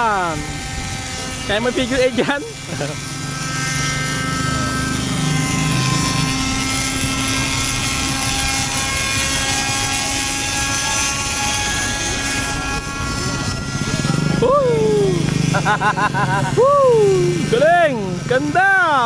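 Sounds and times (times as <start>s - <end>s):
model helicopter whine: 0.0s - 19.0s.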